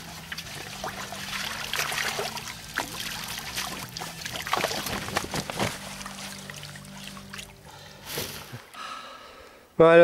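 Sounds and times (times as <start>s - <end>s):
water splashing and trickling: 0.0s - 8.8s
fish flicking at water surface: 1.7s - 6.4s.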